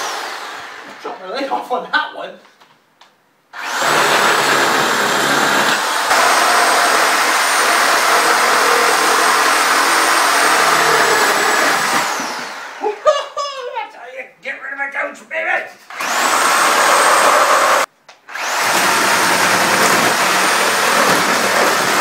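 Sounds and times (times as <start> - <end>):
electric chainsaw cutting wood: 0.0 - 1.0, 3.6 - 12.9, 15.9 - 22.0.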